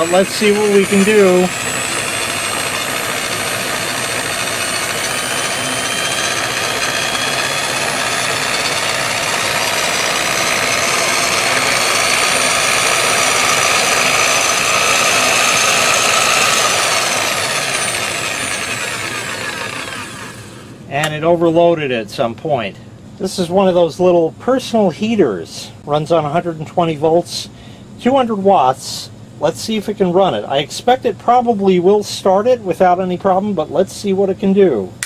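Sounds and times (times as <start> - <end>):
electric polisher motor whining: 0.0 - 20.8.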